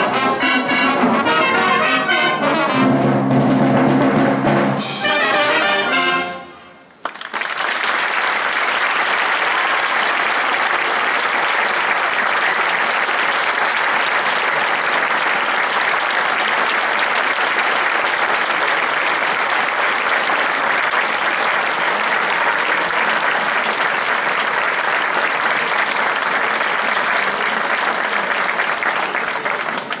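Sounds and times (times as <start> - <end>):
large audience applauding: 7.0 - 30.0.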